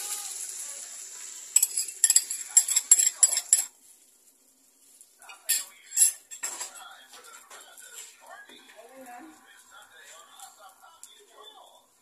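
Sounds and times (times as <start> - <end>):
kitchenware clinking: 1.5 - 3.8, 5.2 - 8.7.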